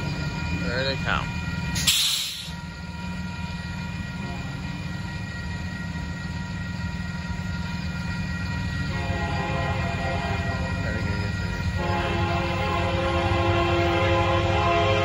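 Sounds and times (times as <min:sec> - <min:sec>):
crossing bell ringing: 0:00.0 - 0:15.0
diesel locomotives rumbling: 0:00.0 - 0:15.0
train horn: 0:04.0 - 0:04.9, 0:08.7 - 0:15.0.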